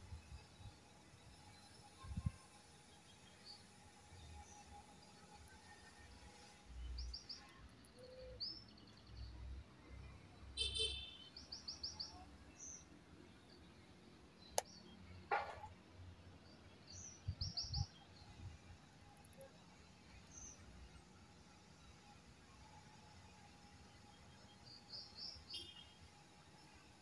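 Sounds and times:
small birds chirping: 16.4s - 21.1s, 24.0s - 26.0s.

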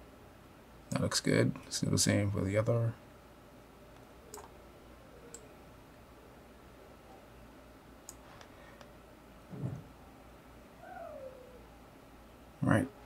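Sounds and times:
computer mouse clicking: 4.0s - 4.6s, 5.3s - 5.5s.

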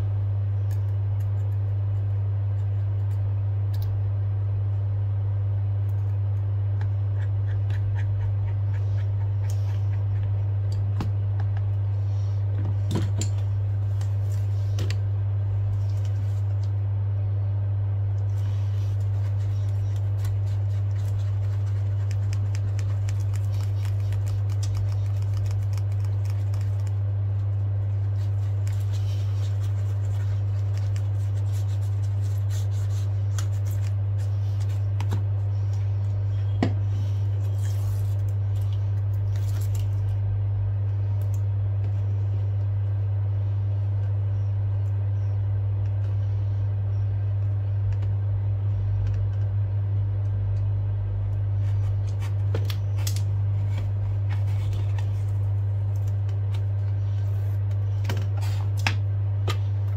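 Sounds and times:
steady low hum: 0.0s - 59.9s
cloth wiping screen: 18.2s - 35.9s.

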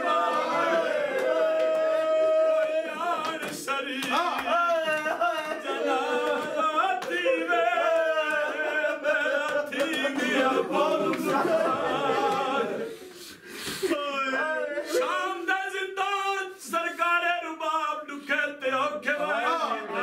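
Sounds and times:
man singing unaccompanied lament: 13.9s - 20.0s.

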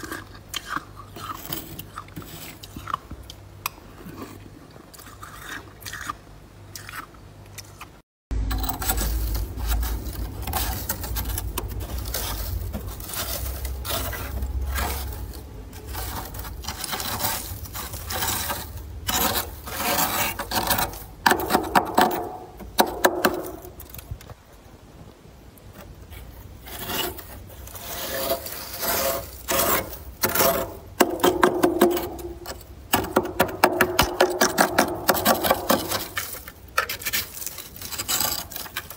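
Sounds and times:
scraper rasping frost: 8.6s - 23.7s, 26.1s - 33.3s, 34.2s - 38.9s.

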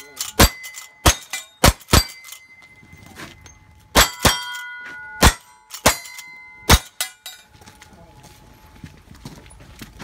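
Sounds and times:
steel target ringing: 0.0s - 7.5s
rifle shots: 0.4s - 2.3s, 5.2s - 6.9s.

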